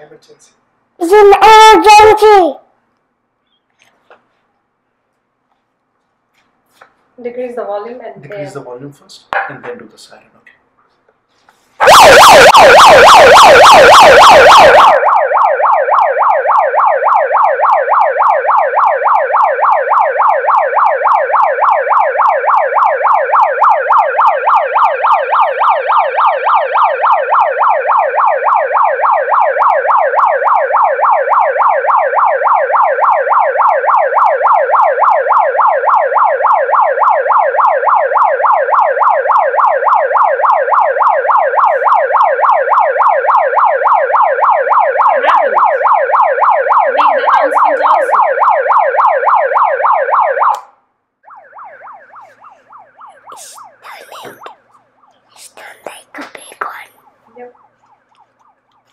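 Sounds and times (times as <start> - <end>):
megaphone siren warbling: 1.0 - 2.6, 11.8 - 55.7.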